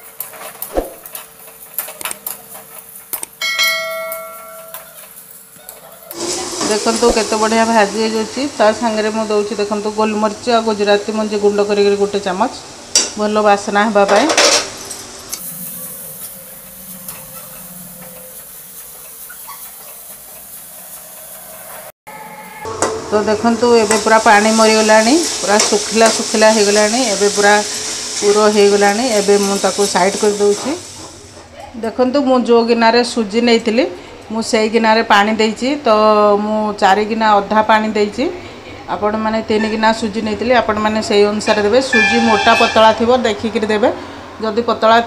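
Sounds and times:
bell-like metallic ring: 3.4 - 5.0, 22.1 - 23.0
coconut dry-roasting hiss: 4.9 - 13.9, 15.1 - 21.9, 23.4 - 31.6.

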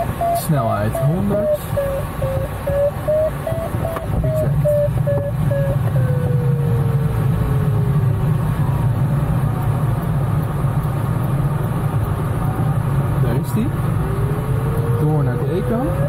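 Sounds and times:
faint tone gliding downward: 0.0 - 8.0
air rushing past cockpit: 0.0 - 16.0.

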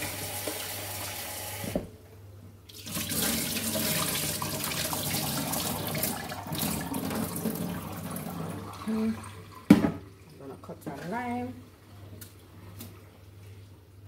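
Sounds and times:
tap water running into sink: 2.7 - 10.1.

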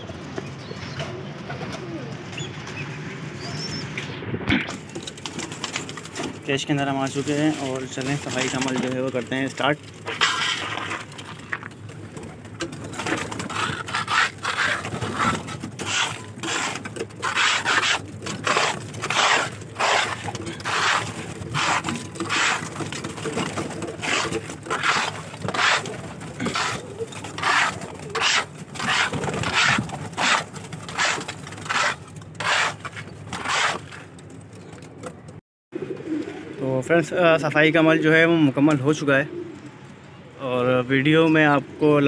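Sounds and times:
hand hoe scraping a floor: 10.1 - 11.7, 12.9 - 34.1.

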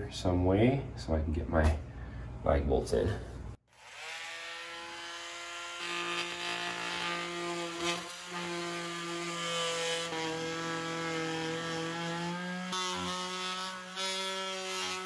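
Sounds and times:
blade rasping into drywall: 3.8 - 15.0.

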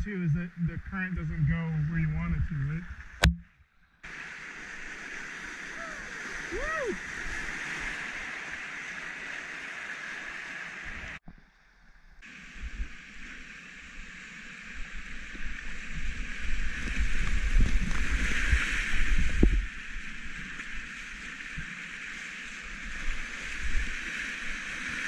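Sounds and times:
water splashing against kayak: 2.6 - 11.3, 12.2 - 25.0
whitewater rushing: 4.1 - 11.2.

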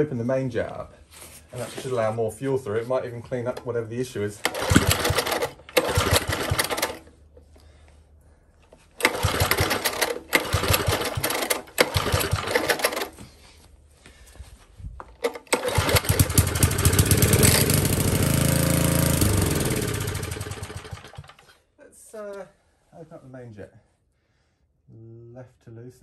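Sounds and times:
recoil cord pull: 4.4 - 7.1, 15.2 - 16.4
small engine sputtering and running: 4.4 - 7.1, 9.0 - 13.1, 15.3 - 21.5.

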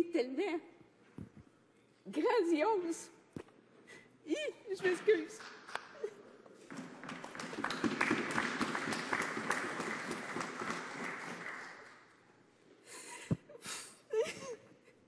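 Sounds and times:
applause: 6.7 - 12.2.

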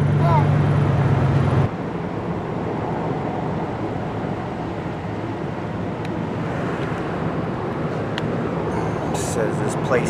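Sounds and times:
truck engine and road noise: 0.0 - 10.0.

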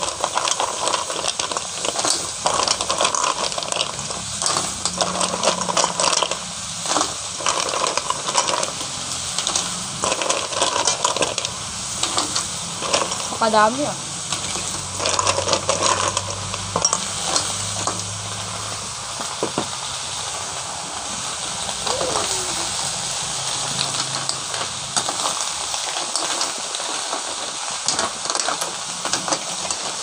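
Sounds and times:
mussel shells clacking: 0.0 - 13.4, 14.3 - 18.2
sizzling hiss from hot pan: 0.0 - 30.0.

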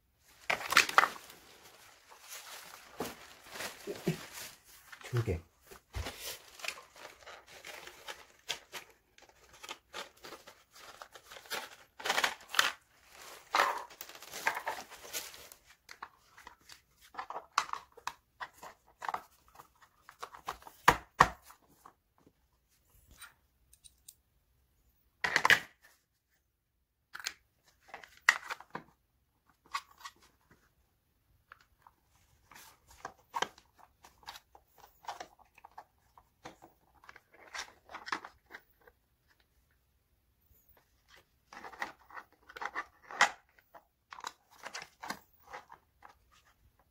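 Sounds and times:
foam and plastic crinkling: 0.3 - 16.0
plastic parts clicking and knocking: 27.1 - 28.9.

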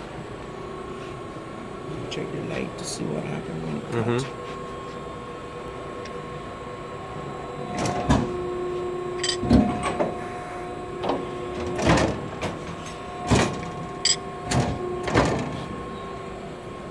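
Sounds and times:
press brake machine hum: 3.6 - 16.9.

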